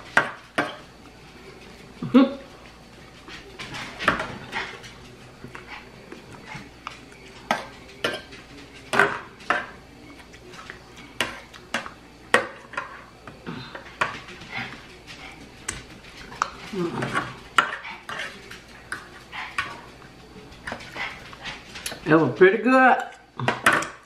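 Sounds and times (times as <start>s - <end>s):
fork clinking against plate: 7.5s - 9.8s.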